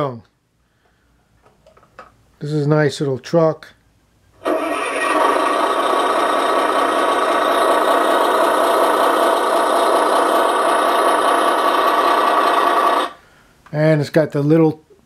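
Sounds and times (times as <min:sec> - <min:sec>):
tinny toy truck engine sound: 0:04.4 - 0:13.2.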